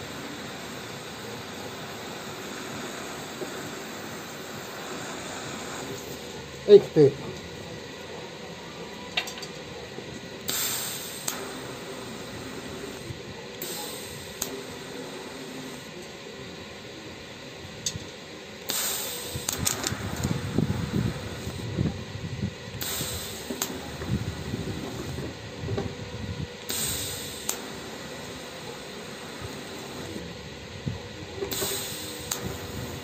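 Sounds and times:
welding arc hissing: 0:00.0 - 0:08.0, 0:09.3 - 0:33.0
steady background hiss: 0:00.0 - 0:33.0.

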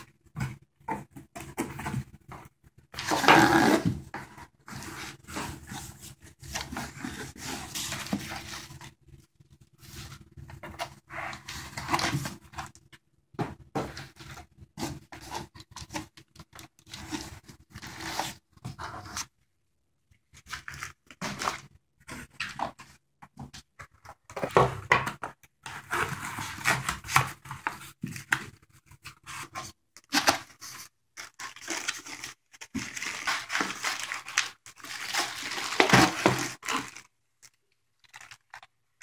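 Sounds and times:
cardboard rustling and scraping: 0:00.0 - 0:09.0, 0:13.7 - 0:19.3, 0:25.6 - 0:37.0.

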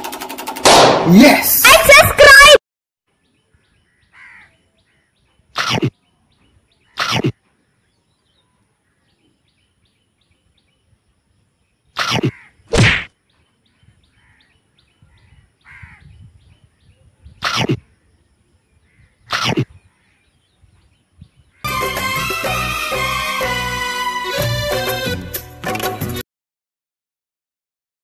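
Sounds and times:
faint bird chirping: 0:03.1 - 0:21.7.

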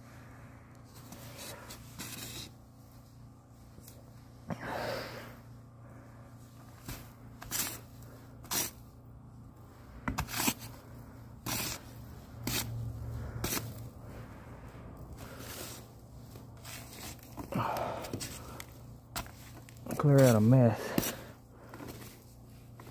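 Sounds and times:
low steady hum: 0:00.0 - 0:22.9
stick scraping attic insulation: 0:06.8 - 0:08.9, 0:10.0 - 0:10.8, 0:11.4 - 0:13.9, 0:15.2 - 0:22.9.

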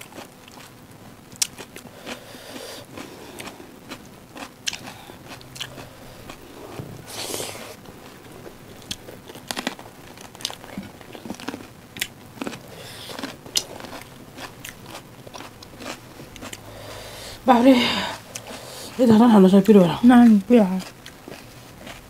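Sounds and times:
cucumber crunching chewed: 0:01.4 - 0:16.8, 0:20.2 - 0:22.0.

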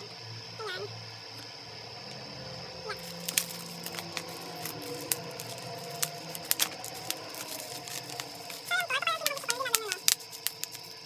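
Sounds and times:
bubble wrap crinkling: 0:02.9 - 0:11.0
sharp clicks: 0:03.1 - 0:11.0.

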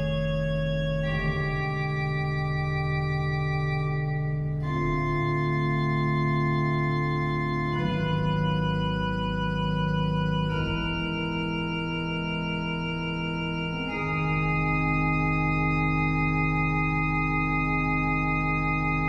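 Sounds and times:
pipe organ sustained chords: 0:00.0 - 0:19.0.

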